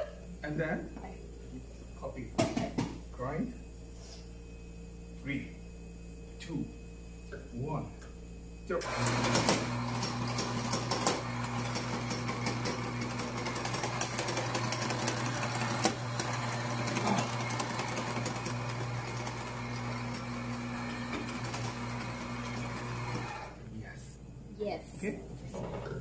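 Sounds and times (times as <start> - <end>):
coffee grinder motor hum: 8.7 - 23.6
coffee beans crackling in grinder: 8.9 - 23.4.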